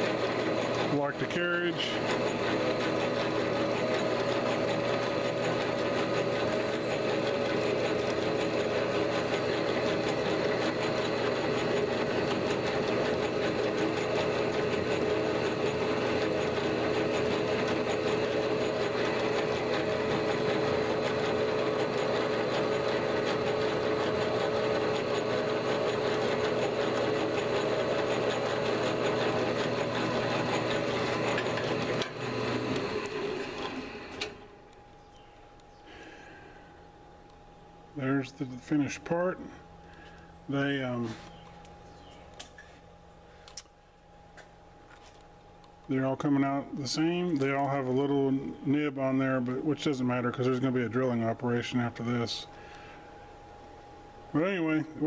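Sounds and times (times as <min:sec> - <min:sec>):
parting tool cutting metal: 0:00.0 - 0:34.3
metal lathe whining: 0:00.0 - 0:36.9.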